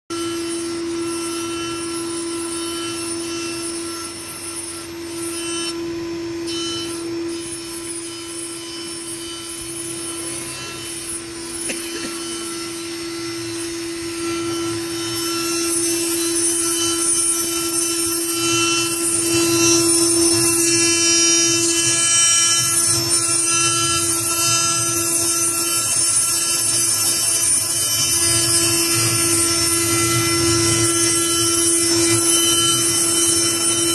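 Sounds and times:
spindle whine: 0.2 - 33.9
bit grinding stone: 13.6 - 33.9.

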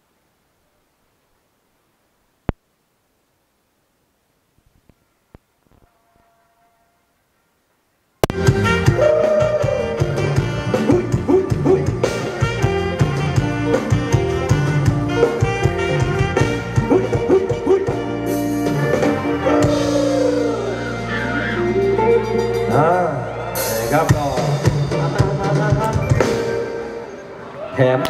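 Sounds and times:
brass instruments: 4.9 - 27.8
steady drum kit beat: 8.2 - 26.8
dance band music: 8.2 - 27.4
saxophone: 8.2 - 27.5.

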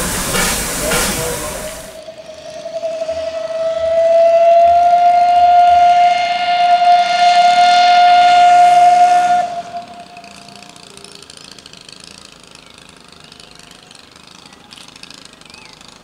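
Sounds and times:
steam locomotive whistle: 0.0 - 11.5.

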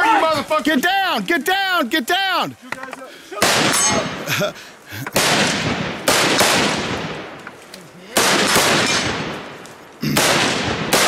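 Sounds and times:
rifle shots: 3.4 - 4.3, 5.2 - 7.5, 8.1 - 11.0.

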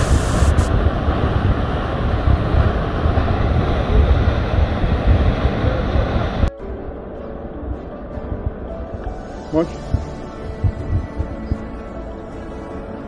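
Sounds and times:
waterfall rushing: 0.0 - 6.5
wind buffeting microphone: 0.0 - 6.5.

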